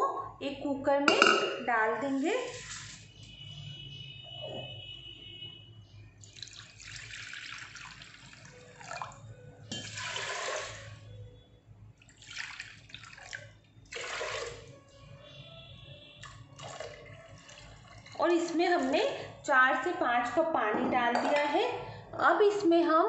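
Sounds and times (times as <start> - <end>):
water pouring into a pot: 2.4 - 3.0, 6.2 - 11.2, 12.0 - 14.8, 16.2 - 19.3.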